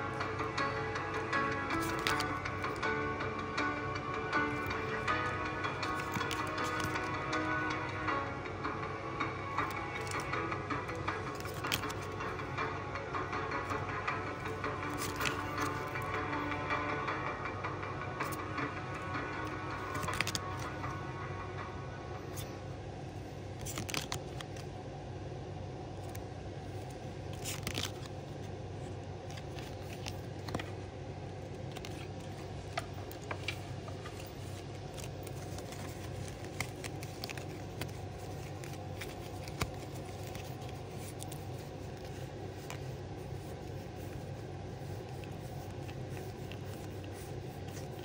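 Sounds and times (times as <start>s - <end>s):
steady low hum: 0.0s - 48.0s
card packs tearing and crinkling: 1.7s - 2.8s, 4.5s - 7.3s, 11.0s - 12.3s, 14.4s - 16.2s, 19.8s - 20.7s, 23.6s - 24.6s, 27.3s - 28.2s, 29.3s - 30.7s, 33.0s - 48.0s.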